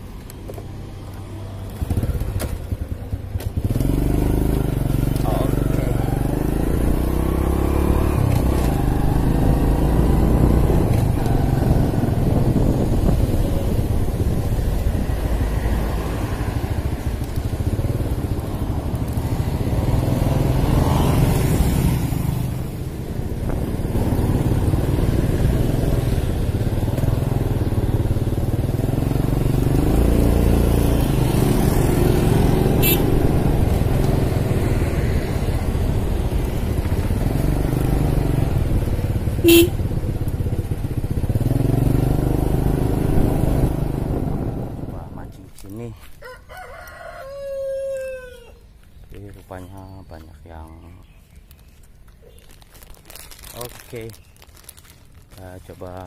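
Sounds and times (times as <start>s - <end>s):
motorcycle engine running: 1.0s - 45.6s
wind rushing past microphone: 8.1s - 20.0s.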